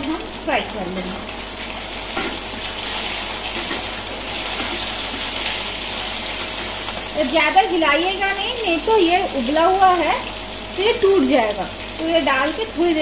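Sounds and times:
slices sizzling in hot oil: 0.0 - 13.0.

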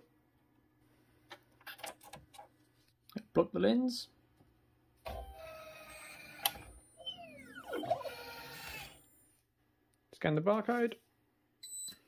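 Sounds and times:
machine motors whirring: 5.1 - 9.3
falling whines: 5.2 - 9.4.

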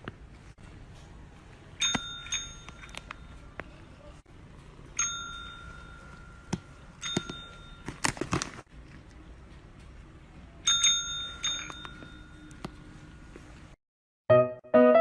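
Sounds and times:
desk service bell ringing: 1.8 - 3.4, 5.0 - 7.9, 10.6 - 12.6.

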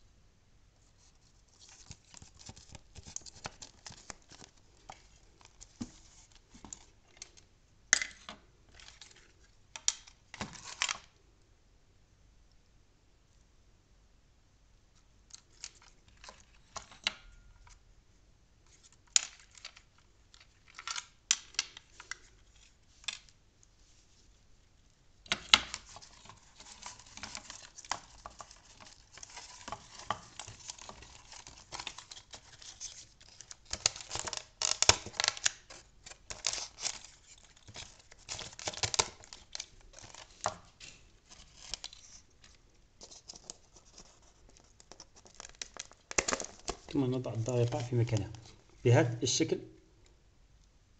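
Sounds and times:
hands handling wires and parts: 0.9 - 11.2, 15.0 - 17.8, 18.6 - 48.8
paper rustling and crinkling: 1.0 - 7.5, 8.7 - 11.1, 25.3 - 48.6.

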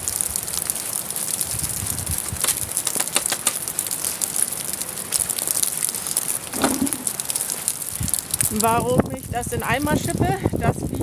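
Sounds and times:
steady crackling hiss: 0.0 - 11.0
scrapes and knocks into bucket: 6.5 - 7.1.

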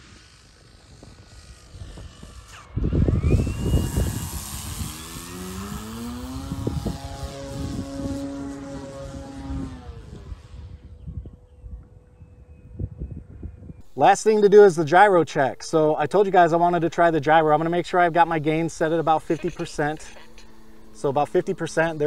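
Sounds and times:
model plane motor whining: 0.0 - 12.0, 16.4 - 22.0
plane passing with loud rush: 0.0 - 12.5, 15.7 - 22.0.

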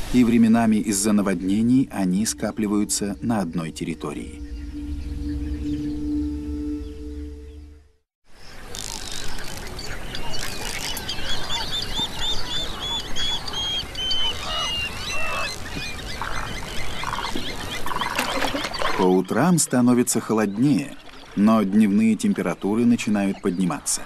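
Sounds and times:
chorus of wild birds: 0.0 - 24.0
music: 0.8 - 8.0
bird looping whistle: 1.3 - 8.0.

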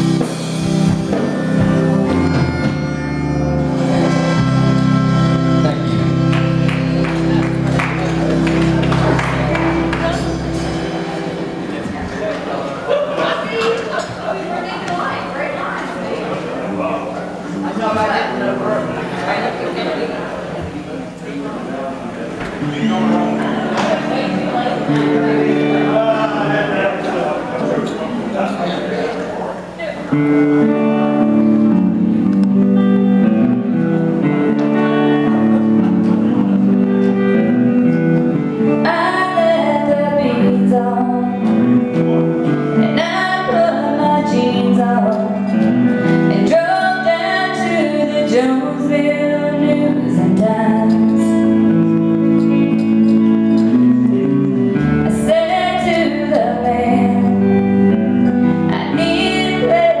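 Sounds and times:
country band playing guitars: 0.0 - 20.8, 22.3 - 60.0
woman singing: 38.8 - 41.6, 42.8 - 45.6, 46.3 - 51.6, 55.1 - 57.7, 58.7 - 60.0.

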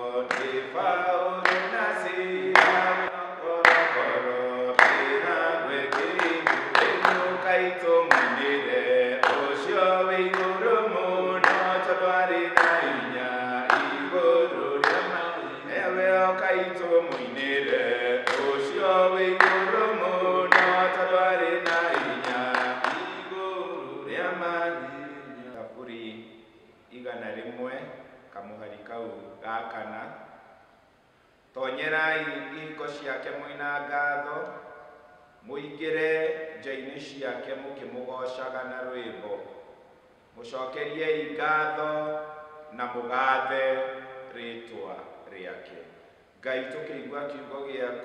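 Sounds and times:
voices singing a worship song: 0.0 - 26.2, 40.4 - 45.8
hand claps: 0.3 - 0.8, 1.4 - 10.7, 11.4 - 14.2, 14.8 - 15.4, 17.1 - 23.4.

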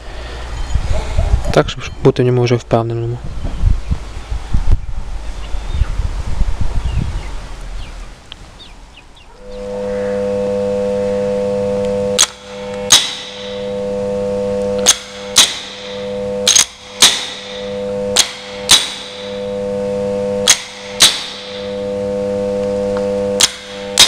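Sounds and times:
starter motor electric hum: 9.2 - 24.0
sharp clicks of clamp: 16.5 - 17.3.

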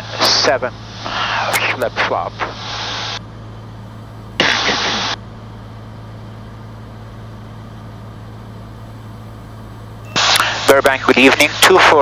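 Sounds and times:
airplane engine and propeller drone: 0.0 - 12.0
voice over radio: 1.5 - 2.6, 10.2 - 12.0.

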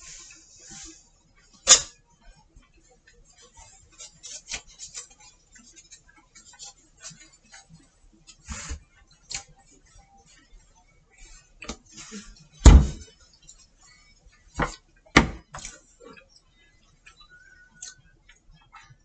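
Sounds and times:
heavy thump on counter: 12.6 - 13.0.

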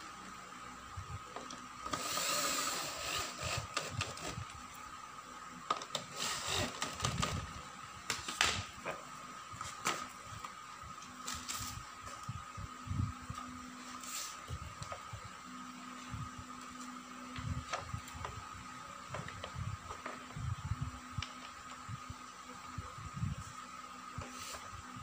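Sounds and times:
electric drill driving screws: 1.8 - 4.5, 5.9 - 7.4.

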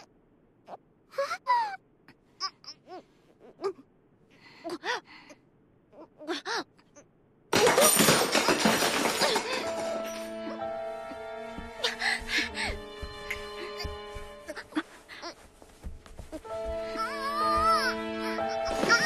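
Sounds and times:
girl gasping and moaning: 13.5 - 15.4.

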